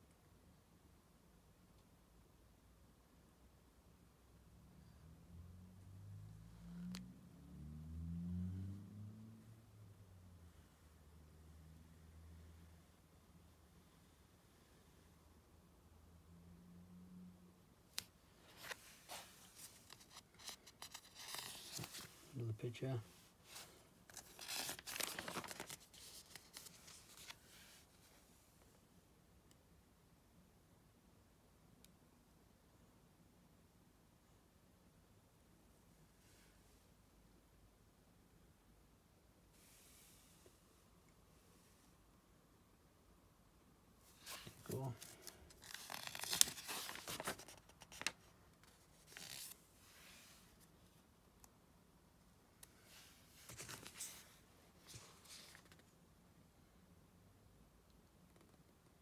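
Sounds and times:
magazine page turning: 18.5 - 22.4, 23.5 - 27.8, 44.1 - 49.6, 53.3 - 55.8.

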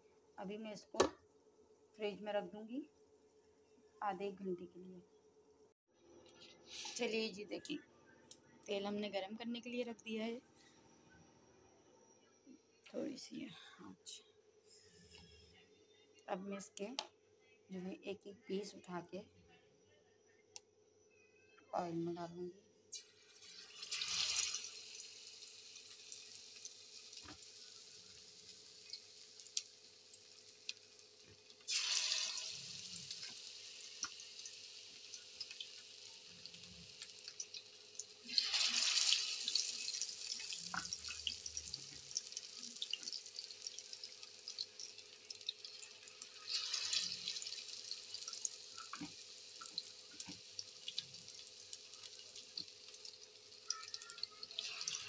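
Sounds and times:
fish deep-frying in hot oil: 23.0 - 55.0.

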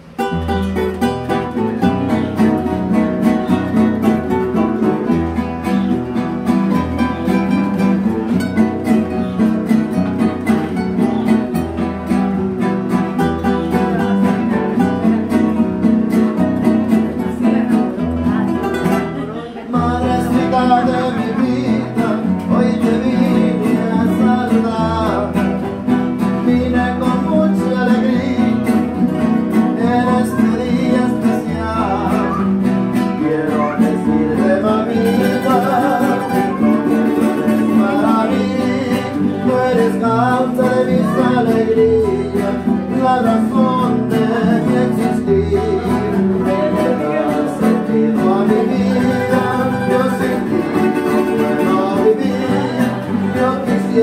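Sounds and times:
acoustic guitars strumming: 0.0 - 54.0
person singing: 19.4 - 54.0.

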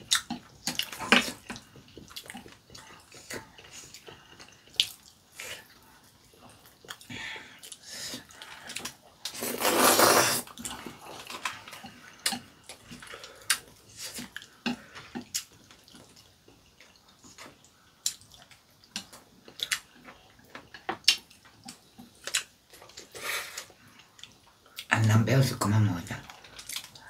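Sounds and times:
wet chewing and lip-smacking: 0.0 - 7.8
loud spaghetti slurp: 9.3 - 10.7.

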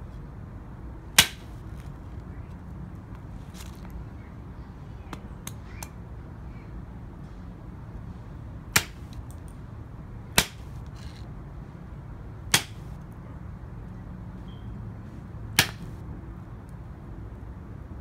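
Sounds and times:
knife chopping onto concrete: 1.2 - 1.5, 8.8 - 9.2, 10.4 - 10.7, 12.5 - 12.9, 15.6 - 15.9.

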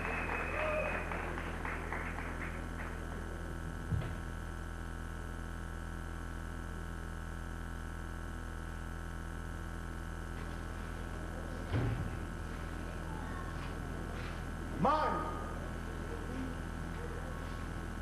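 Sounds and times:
claps: 0.0 - 3.5
steady hum: 0.0 - 18.0
thump: 3.9 - 4.2, 11.7 - 12.2.

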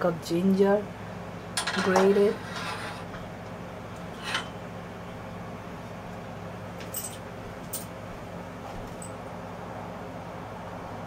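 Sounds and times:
low kitchen hum: 0.0 - 11.0
dishes clinking: 1.6 - 3.3.

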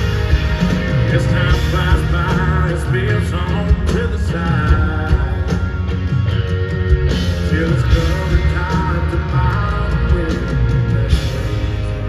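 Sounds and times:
live country band playing: 0.0 - 12.0
man singing into a microphone: 1.0 - 6.0, 7.4 - 12.0.

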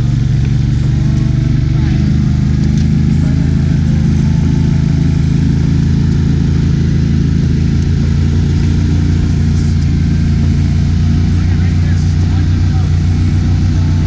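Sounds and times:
boat engine drone: 0.0 - 14.0.

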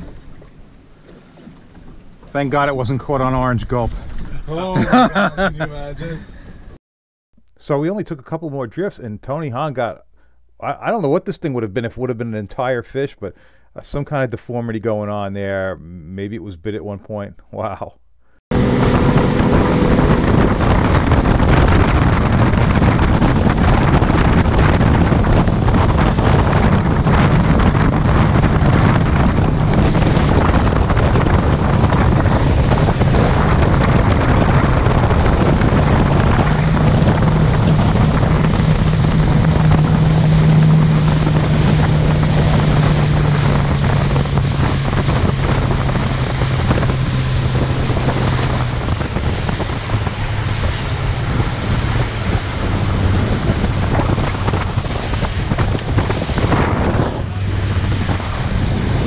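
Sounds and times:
motorboat engine drone: 0.0 - 2.4, 18.5 - 59.0
water rushing and splashing: 0.0 - 2.7, 18.5 - 59.0
wind buffeting microphone: 0.0 - 6.8, 18.5 - 59.0.

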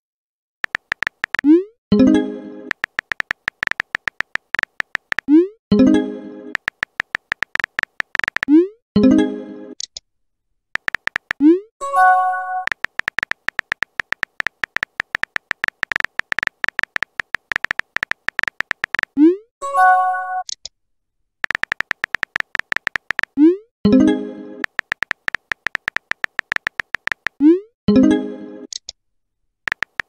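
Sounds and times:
rising pop: 0.6 - 1.5, 2.7 - 5.3, 6.6 - 8.5, 10.8 - 11.4, 12.7 - 19.2, 21.4 - 23.4, 24.6 - 27.4
keyboard typing clicks: 0.6 - 1.6, 2.7 - 5.3, 6.6 - 8.5, 10.8 - 11.4, 12.6 - 19.2, 21.4 - 23.4, 24.6 - 27.4, 29.7 - 30.0.

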